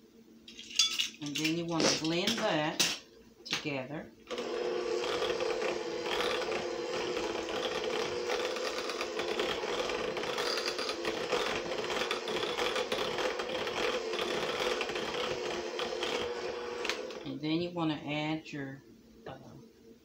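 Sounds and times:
electric hand mixer running: 0:04.3 - 0:17.3.

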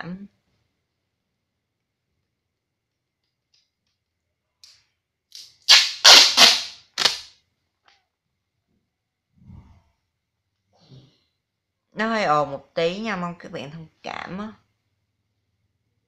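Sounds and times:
packing tape ripping off roll: 0:05.3 - 0:07.4.

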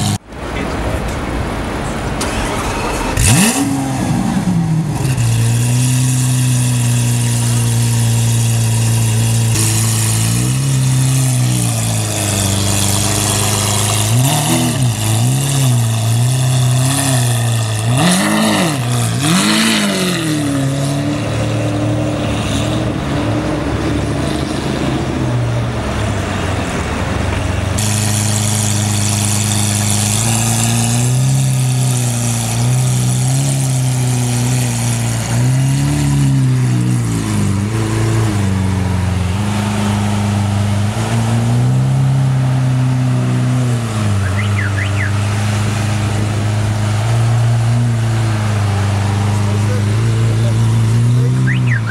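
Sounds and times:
car engine revving: 0:00.0 - 0:51.9
car engine idling: 0:04.3 - 0:18.1, 0:25.7 - 0:42.7, 0:43.4 - 0:51.9.

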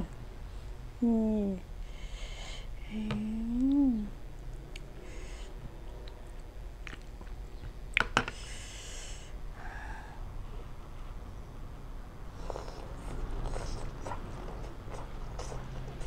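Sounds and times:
soft mouth noises: 0:02.8 - 0:07.8, 0:12.3 - 0:16.0
person chewing: 0:06.0 - 0:07.7.

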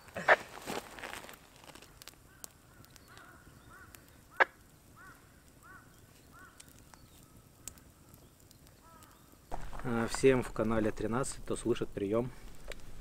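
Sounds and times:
sharp crack: 0:09.0 - 0:13.0.

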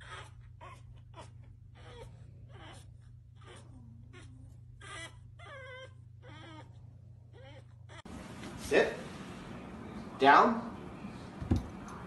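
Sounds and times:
puppy whining: 0:00.0 - 0:08.1.

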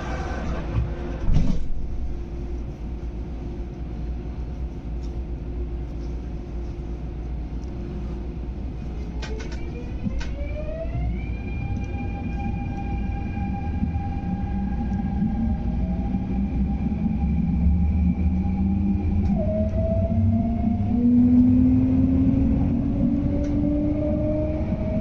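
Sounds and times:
traction motor whine rising: 0:00.0 - 0:02.2, 0:09.2 - 0:25.0
train low hum: 0:00.0 - 0:25.0.

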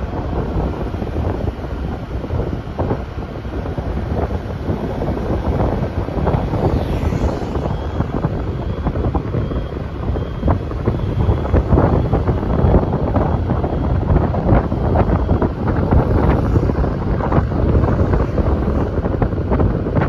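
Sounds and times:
road and traffic noise: 0:00.0 - 0:20.0
wind buffeting microphone: 0:00.0 - 0:20.0.

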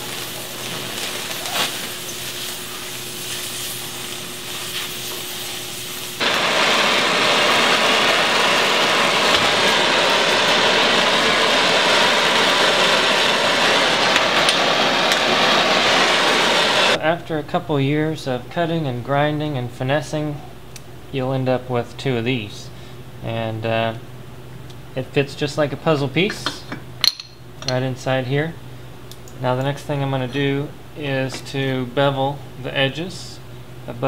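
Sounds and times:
cutting torch hissing: 0:00.0 - 0:17.0.

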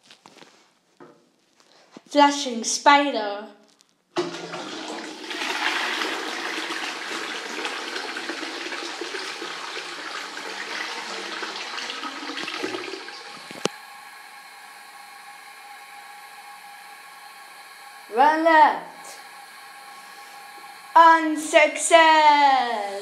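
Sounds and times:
toilet flushing: 0:04.2 - 0:23.0
faint hum: 0:13.2 - 0:23.0.

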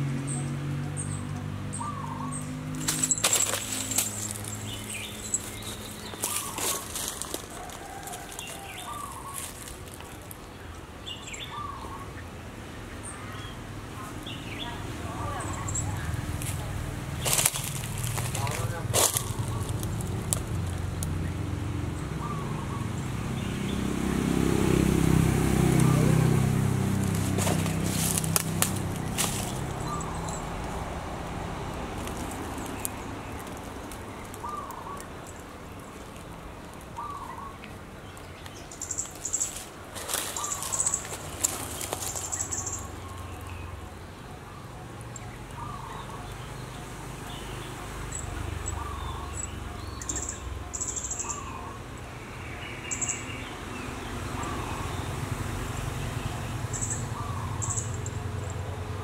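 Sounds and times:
bird calls: 0:01.0 - 0:23.9, 0:27.0 - 0:30.9, 0:32.1 - 0:58.7
high bird chirping: 0:01.7 - 0:07.6, 0:27.1 - 0:31.1, 0:38.5 - 0:46.7, 0:47.3 - 0:53.4, 0:56.5 - 0:58.7
kitten rustling in dry leaves: 0:02.6 - 0:10.5, 0:15.2 - 0:21.2, 0:24.6 - 0:37.6, 0:38.6 - 0:43.5.

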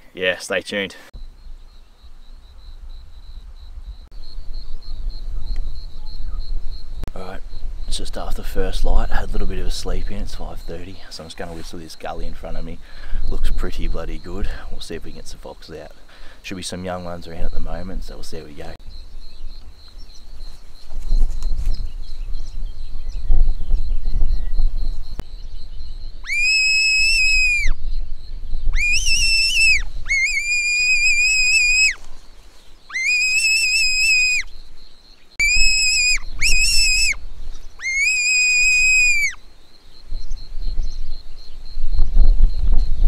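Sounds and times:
high-pitched fox whistle calls: 0:26.2 - 0:27.8, 0:28.7 - 0:32.0, 0:32.9 - 0:34.5, 0:35.4 - 0:37.2, 0:37.8 - 0:39.4.

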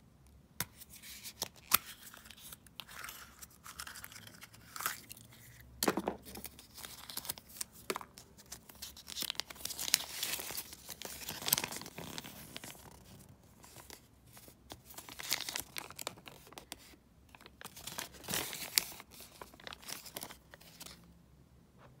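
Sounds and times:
paper crinkling and rustling: 0:06.2 - 0:21.0.

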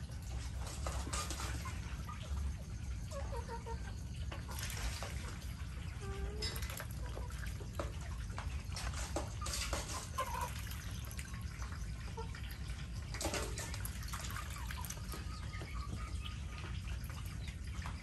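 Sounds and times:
water dripping and trickling: 0:00.0 - 0:18.0
ducks and chickens calling: 0:00.1 - 0:18.0
water splashing: 0:04.4 - 0:18.0.

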